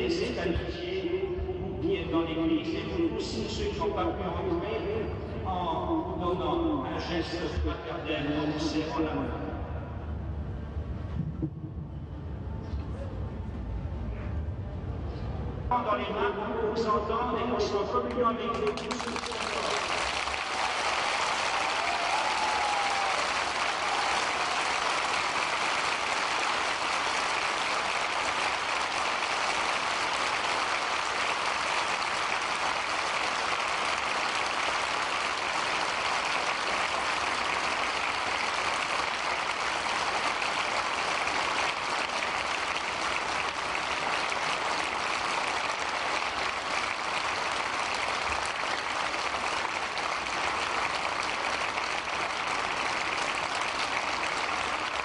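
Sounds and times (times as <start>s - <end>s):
crowd applauding: 18.5s - 55.0s.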